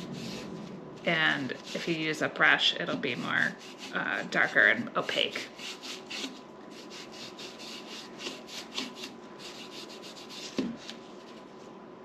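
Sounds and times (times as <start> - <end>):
foam brush rubbing on wood: 0.0 - 11.4.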